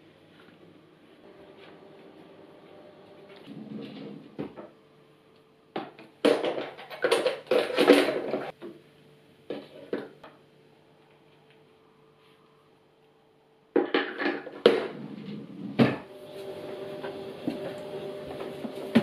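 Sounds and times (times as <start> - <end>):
faint steady hum: 8.3 - 19.0.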